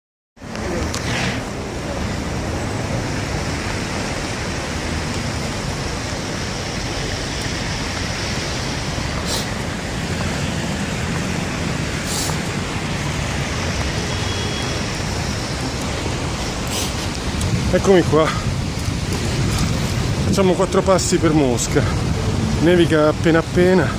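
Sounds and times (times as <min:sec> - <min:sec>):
street traffic: 0:00.4 - 0:23.9
short high hisses: 0:09.2 - 0:09.5, 0:12.0 - 0:12.4
wind on phone microphone: 0:17.0 - 0:20.5.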